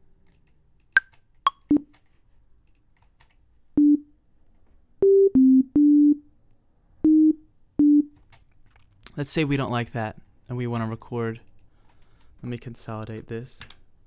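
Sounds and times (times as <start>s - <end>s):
synthesizer beep-like notes: 5.0s - 6.3s, 7.1s - 8.1s.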